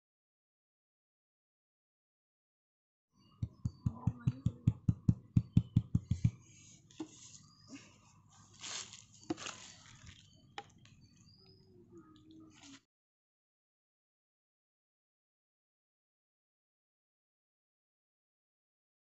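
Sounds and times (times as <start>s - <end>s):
fingers tapping subwoofer cone: 3.4s - 6.4s.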